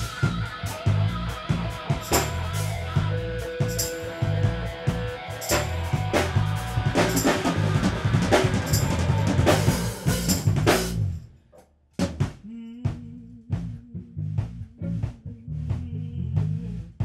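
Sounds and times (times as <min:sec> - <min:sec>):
funk rock band playing: 0:00.0 - 0:11.1.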